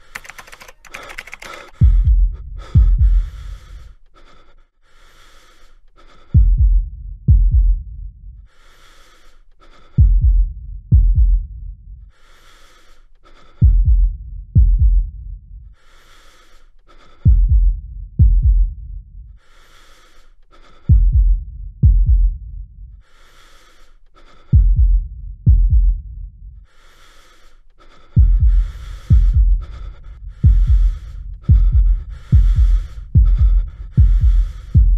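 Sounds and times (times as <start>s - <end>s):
breathy inhales: 0.0s - 6.4s, 8.5s - 10.0s, 15.8s - 17.3s, 19.4s - 20.9s, 23.0s - 24.6s, 26.6s - 34.9s
deep heartbeats: 1.7s - 4.0s, 6.3s - 8.5s, 10.0s - 12.0s, 13.6s - 15.8s, 17.2s - 19.4s, 20.8s - 23.0s, 24.4s - 26.7s, 28.1s - 34.9s.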